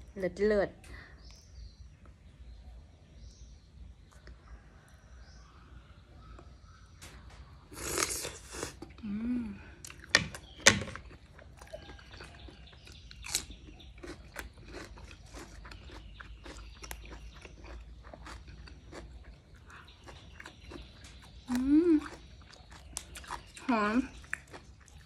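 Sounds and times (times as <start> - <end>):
biting into sausage: 9.8 - 25.0
wet chewing with lip smacks: 9.8 - 25.0.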